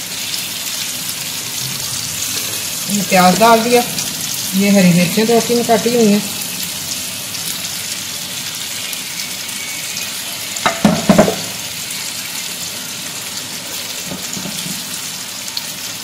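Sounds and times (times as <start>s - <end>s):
onions sizzling in a frying pan: 0.0s - 16.0s
tongs knocking against pan: 10.6s - 11.6s.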